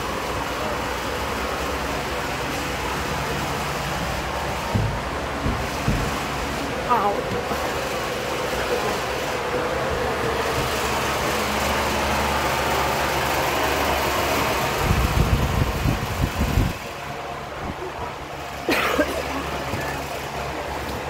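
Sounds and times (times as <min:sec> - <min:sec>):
machinery humming: 0:00.0 - 0:21.0
low rumbling thumps: 0:03.6 - 0:07.8.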